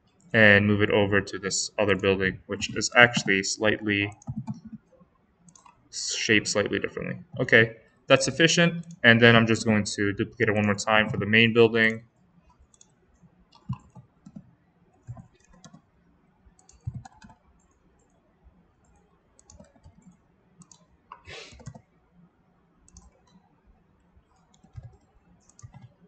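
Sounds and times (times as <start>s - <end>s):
keyboard key presses: 4.1s - 4.9s, 16.6s - 17.4s, 19.4s - 20.8s, 24.4s - 26.0s
computer mouse clicks: 4.1s - 5.8s, 11.9s - 15.9s, 16.6s - 18.2s, 18.8s - 21.9s, 22.8s - 26.0s.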